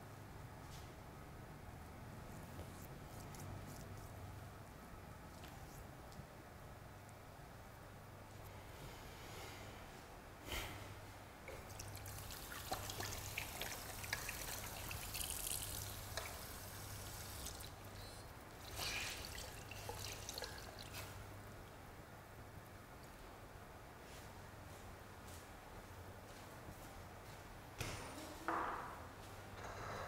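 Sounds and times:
water trickling and splashing: 11.5 - 17.9, 18.6 - 21.2.

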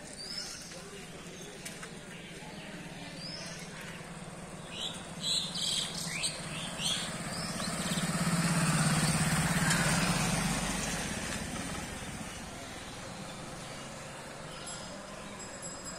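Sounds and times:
vehicle engine passing by: 3.6 - 14.9.

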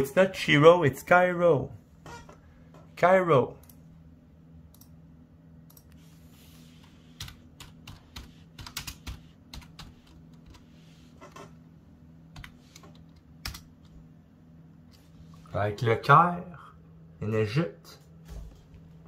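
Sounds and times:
steady low hum: 0.0 - 19.0
typing on computer keyboard: 7.2 - 10.6, 12.4 - 13.7.

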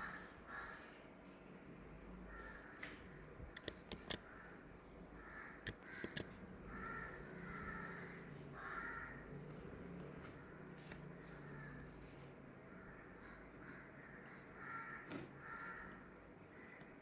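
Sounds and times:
crows cawing: 0.0 - 1.0, 2.3 - 3.2, 4.2 - 9.6, 11.2 - 17.0
sharp clicks: 3.5 - 4.3, 5.6 - 6.4.

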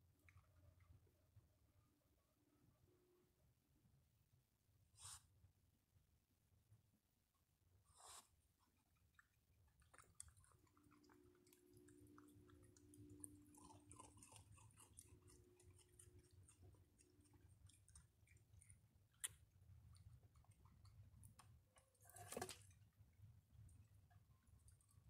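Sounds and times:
raccoons chewing dry food: 8.6 - 25.0.

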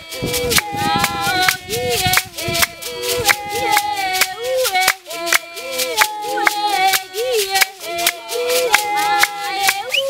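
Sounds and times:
high voices singing: 0.0 - 10.0
leg rattles shaking: 0.0 - 10.0.

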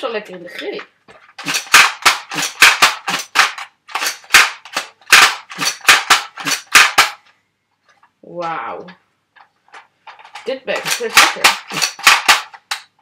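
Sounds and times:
toy blaster plastic clacks: 1.4 - 7.2, 10.1 - 12.9.

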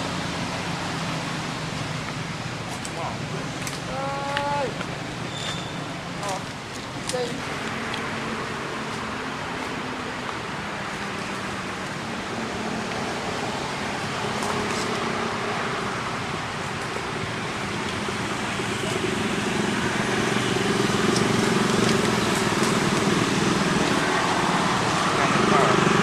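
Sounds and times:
vehicle engine running: 15.8 - 26.0.

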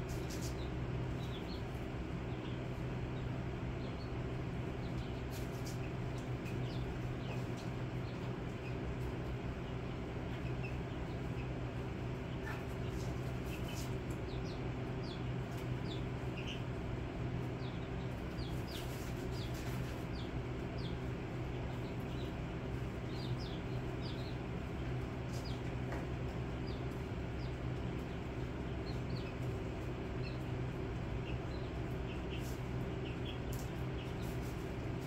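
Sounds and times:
baby chicks peeping: 0.0 - 35.0
steady low hum: 0.0 - 35.0.

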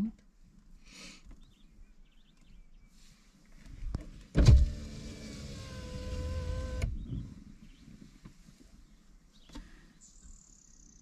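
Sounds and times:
window motor thump: 4.4 - 7.2
electric window motor humming: 4.5 - 7.0.

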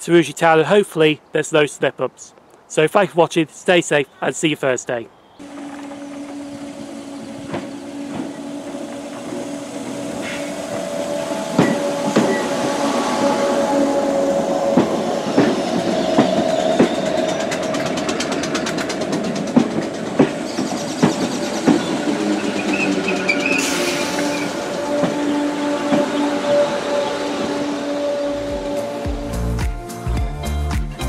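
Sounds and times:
train wheels clicking over rail joints: 5.4 - 26.4
electric train humming: 5.4 - 29.6.

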